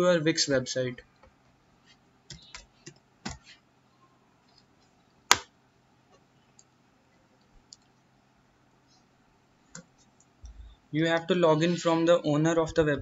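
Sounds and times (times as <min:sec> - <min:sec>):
faint steady hum: 0:00.0 - 0:13.0
keyboard and mouse clicks: 0:02.3 - 0:03.5.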